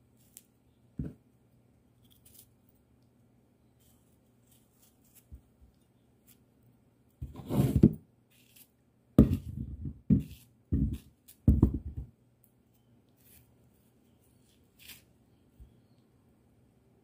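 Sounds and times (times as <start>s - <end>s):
knife cutting crisp fruit: 3.8s - 6.5s, 8.3s - 11.6s, 14.3s - 15.8s.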